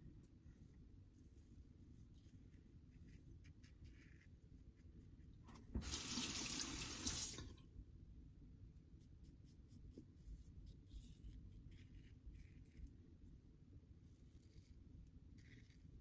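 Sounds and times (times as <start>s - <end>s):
tap running: 5.5s - 7.6s.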